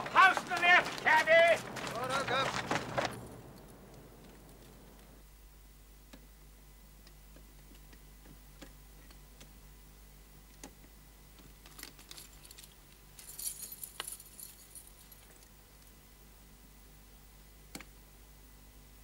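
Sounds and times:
lock picks jingling: 11.7 - 15.4.

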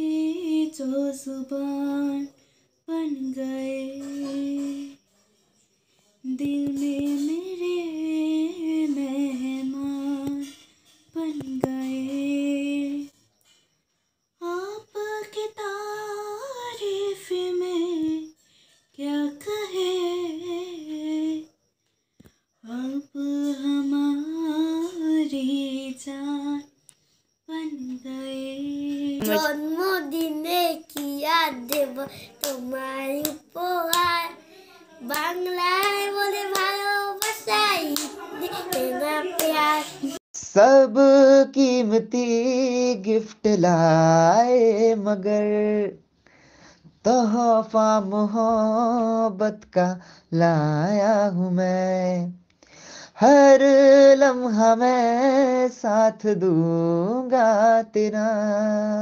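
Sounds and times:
person singing slow melody: 0.0 - 5.0, 6.2 - 10.6, 11.2 - 13.2, 14.4 - 21.5, 22.6 - 26.7, 27.5 - 46.0
child singing: 29.1 - 40.2
hand claps: 29.2 - 34.3, 35.1 - 40.1.

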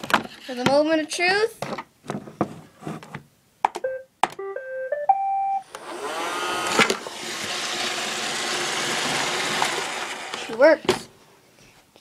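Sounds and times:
robot vacuum beeping tune: 3.8 - 6.8
vacuum motor whine: 5.7 - 10.6.

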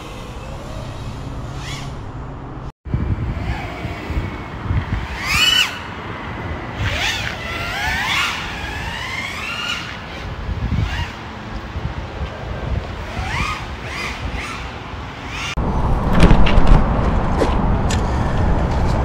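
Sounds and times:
quadcopter motors whining: 0.0 - 2.2, 3.1 - 11.6, 12.9 - 15.6
wind and airflow rumble: 0.0 - 19.0.

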